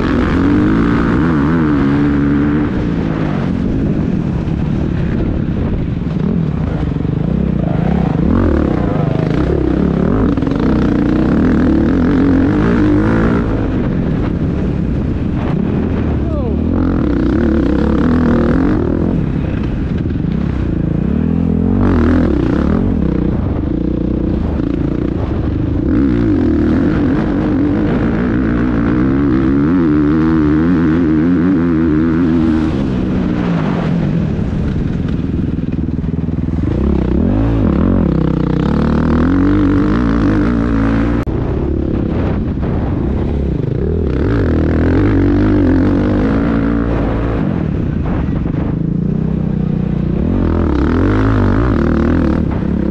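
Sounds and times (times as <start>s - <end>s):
motocross bike engine revving: 0.0s - 4.9s, 6.1s - 52.9s.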